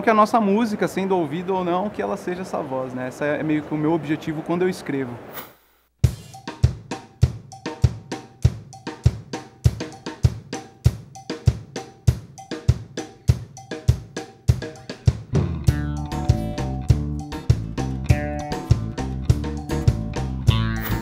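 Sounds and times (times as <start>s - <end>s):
drum kit rock groove: 6.0s - 21.0s
other instruments playing: 14.6s - 21.0s.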